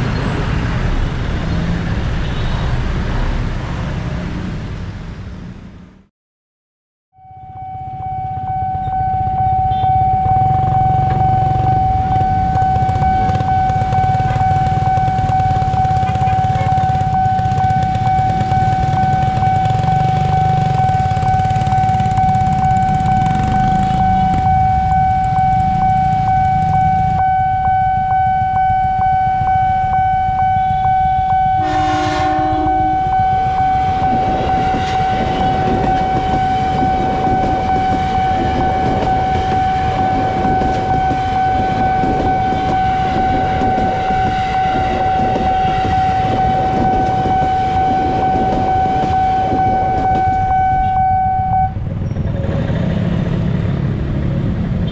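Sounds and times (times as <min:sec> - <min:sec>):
low traffic rumble: 0:00.0 - 0:06.1, 0:07.4 - 0:54.9
level-crossing siren tone: 0:07.2 - 0:51.8
electric train rumbling past: 0:07.3 - 0:54.9
train horn blast: 0:08.8 - 0:10.1, 0:30.4 - 0:51.7.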